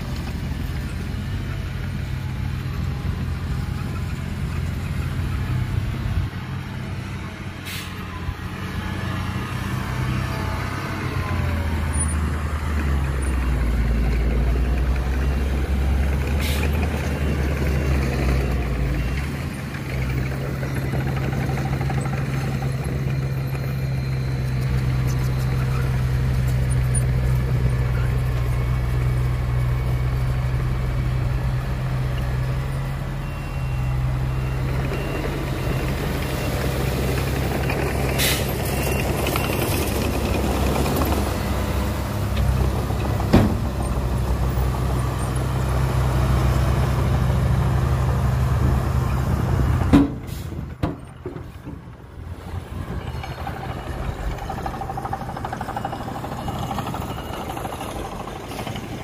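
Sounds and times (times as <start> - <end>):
diesel engine droning: 0.0 - 59.0.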